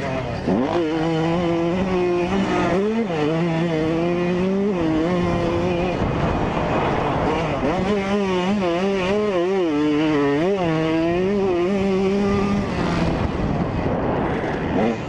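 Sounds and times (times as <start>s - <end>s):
two-stroke dirt bike engine: 0.0s - 15.0s
wind rush: 4.2s - 9.0s, 10.7s - 15.0s.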